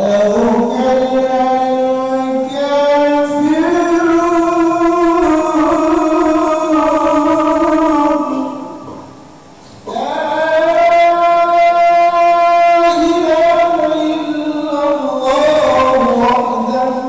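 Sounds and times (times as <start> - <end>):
person chanting: 0.0 - 9.2, 9.8 - 17.0.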